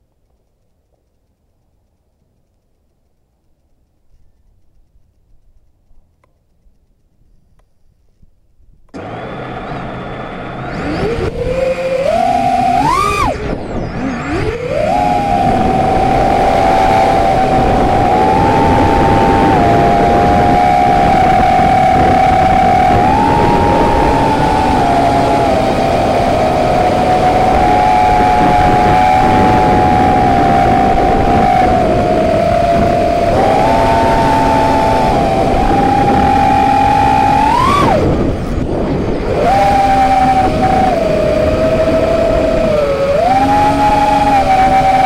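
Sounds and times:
quadcopter motors whining: 0:09.0 - 0:45.0.

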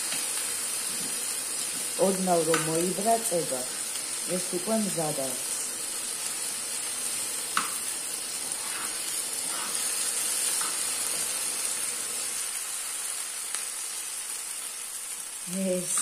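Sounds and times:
rice sizzling in hot oil: 0:00.0 - 0:16.0
spoon scraping pan: 0:08.4 - 0:11.3.

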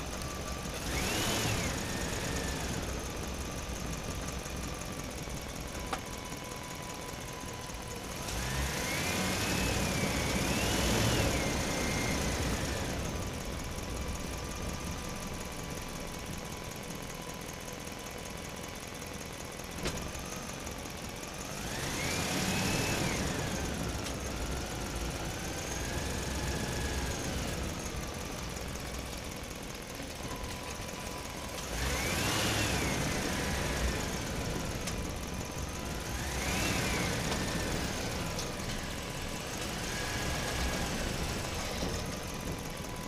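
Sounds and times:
vehicle engine revving: 0:00.0 - 0:04.8, 0:08.0 - 0:13.6, 0:21.4 - 0:28.4, 0:31.5 - 0:43.0.

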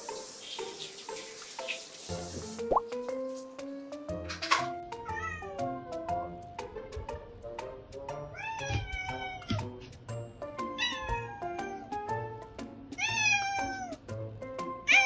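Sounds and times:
background music with steady beat: 0:02.1 - 0:14.9
cat meowing: 0:05.0 - 0:05.6, 0:08.3 - 0:09.7, 0:10.7 - 0:12.0, 0:13.0 - 0:14.0.

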